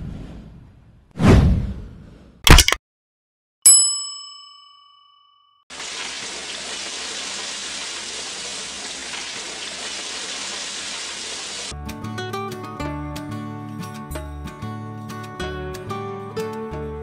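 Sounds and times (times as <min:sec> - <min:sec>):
chicken frying in oil: 0:05.7 - 0:11.7.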